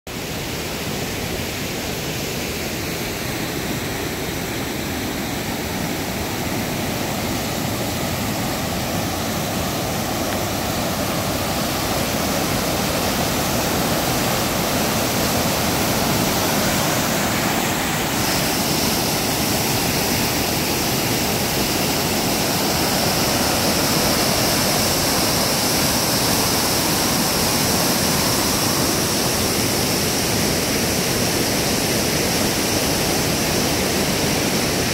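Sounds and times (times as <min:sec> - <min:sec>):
water rushing over rocks: 0:00.1 - 0:34.9.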